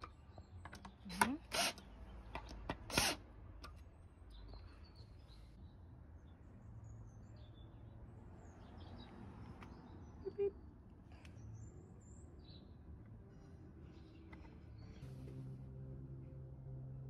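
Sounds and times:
cordless drill burst: 0:01.1 - 0:01.8, 0:02.9 - 0:03.2
low background hum: 0:10.1 - 0:17.0.

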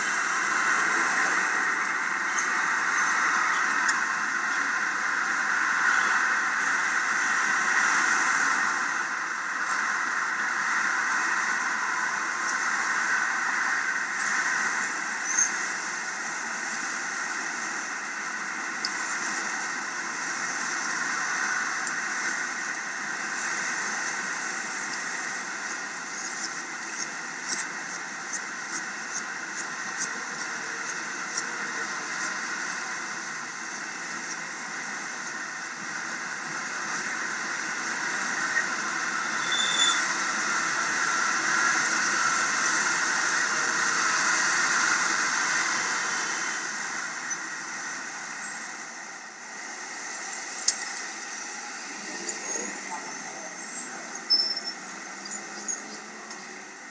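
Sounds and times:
steady noise: 0:00.0 - 0:56.9
mechanical squeal: 0:38.5 - 0:40.3, 0:52.2 - 0:56.0.

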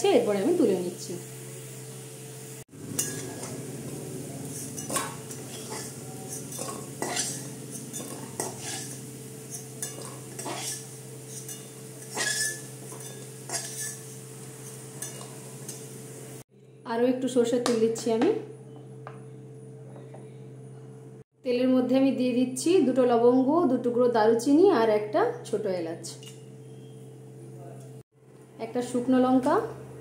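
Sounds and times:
steady low hum: 0:00.0 - 0:21.2
metal spatula scraping a pan: 0:02.8 - 0:16.0.

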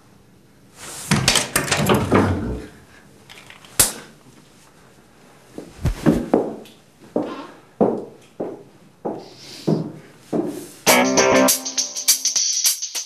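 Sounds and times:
door rattling clicks and knocks: 0:01.1 - 0:02.4.

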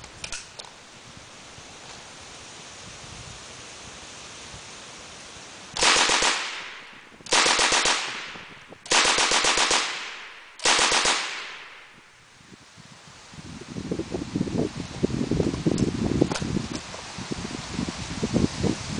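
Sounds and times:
machine gun bursts with echo: 0:05.8 - 0:11.9.

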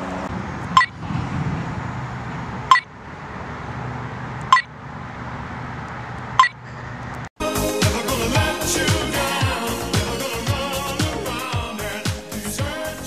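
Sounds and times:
music: 0:07.4 - 0:13.0.

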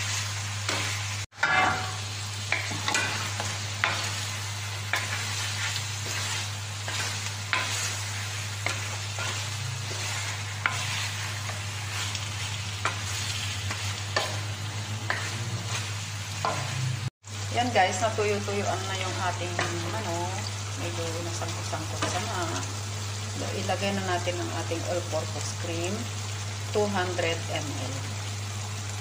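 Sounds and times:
spatula scraping wok: 0:00.0 - 0:17.1
chicken sizzling in oil: 0:00.0 - 0:29.0.

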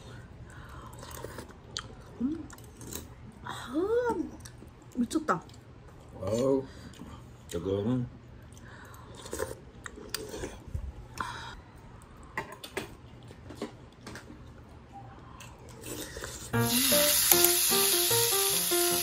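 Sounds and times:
chewing: 0:00.7 - 0:03.2, 0:08.4 - 0:10.7, 0:13.0 - 0:16.6.

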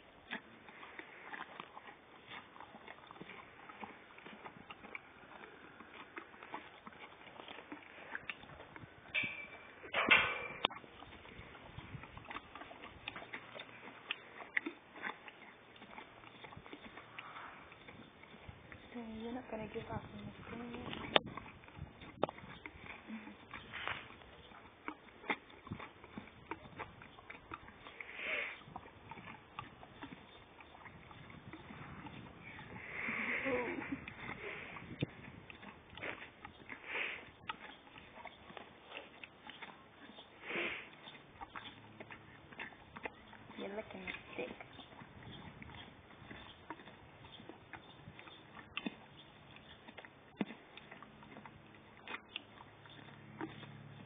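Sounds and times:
pony biting and chewing ice: 0:00.0 - 0:54.0
breathy rushes: 0:32.5 - 0:34.8.

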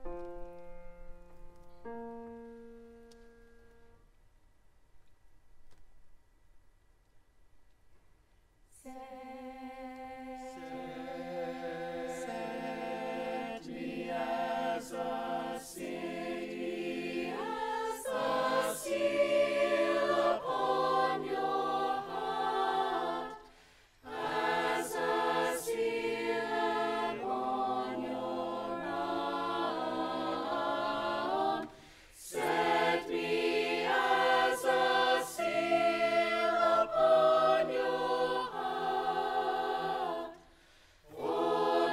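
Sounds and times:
mixed choir singing: 0:08.8 - 0:41.9.

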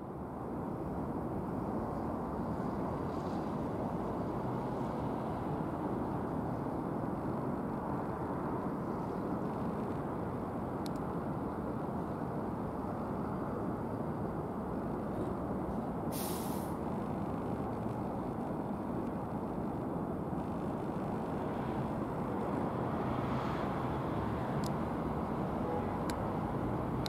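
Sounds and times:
short sharp hiss: 0:16.1 - 0:16.8.

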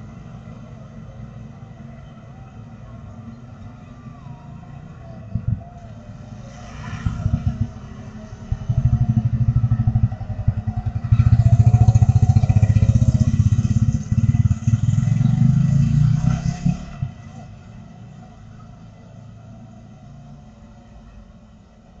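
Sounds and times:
small motorcycle engines passing: 0:03.9 - 0:17.6.

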